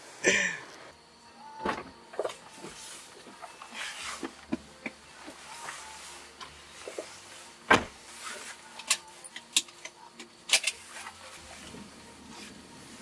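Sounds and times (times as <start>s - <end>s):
faint steady hiss: 0.0s - 13.0s
clicks and knocks in car cabin: 7.7s - 8.0s.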